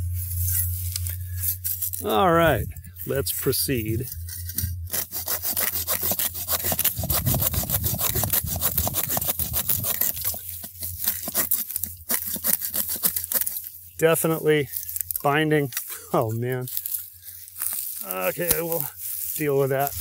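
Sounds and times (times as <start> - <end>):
bow saw cutting log: 4.9 - 13.7.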